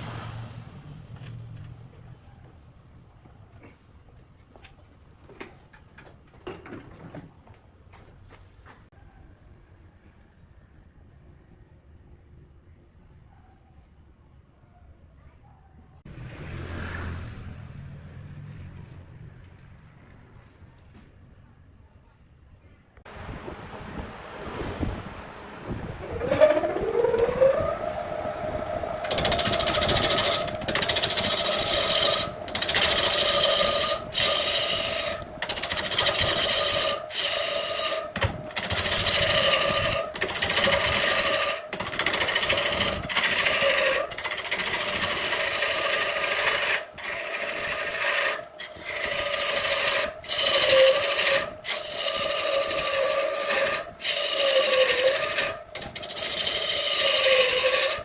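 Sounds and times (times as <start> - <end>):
wood lathe motor whining: 25.2 - 58.0
turning tool scraping wood: 26.0 - 58.0.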